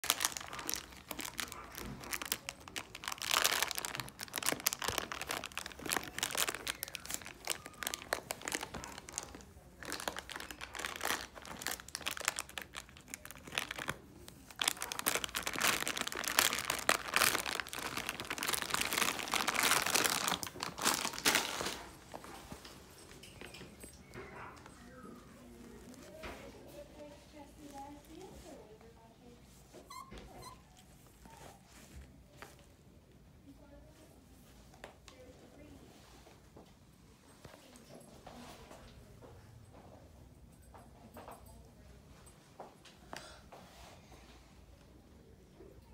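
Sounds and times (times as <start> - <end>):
puppy chewing crinkling plastic: 0.0 - 32.5.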